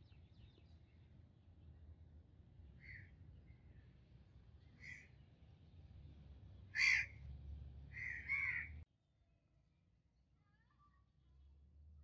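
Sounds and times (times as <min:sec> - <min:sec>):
bird harsh calls: 0:06.8 - 0:07.2, 0:07.9 - 0:08.8.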